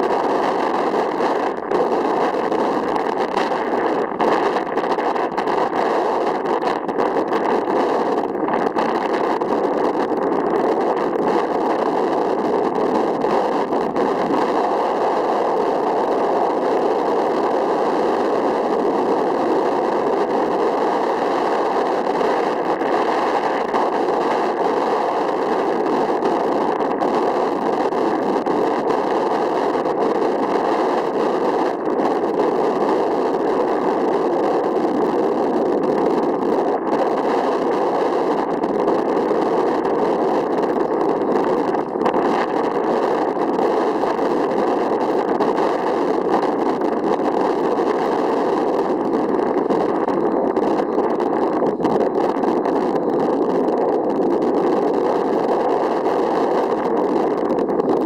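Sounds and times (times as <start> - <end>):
steady rushing noise: 0.0 - 58.0.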